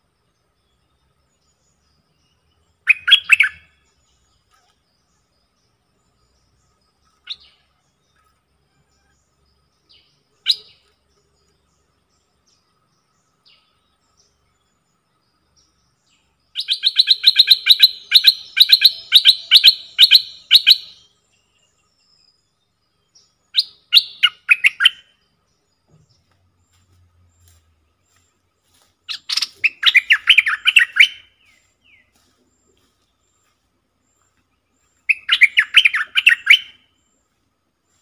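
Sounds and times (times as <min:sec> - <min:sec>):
bird chattering calls: 0:02.9 - 0:03.6, 0:16.6 - 0:21.0, 0:29.1 - 0:31.2.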